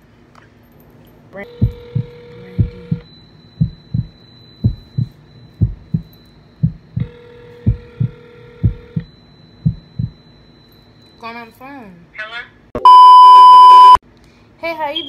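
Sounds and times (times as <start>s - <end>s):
telephone ringback tone: 1.5s - 3.2s, 12.8s - 14.0s
heartbeat thumps: 1.6s - 10.2s.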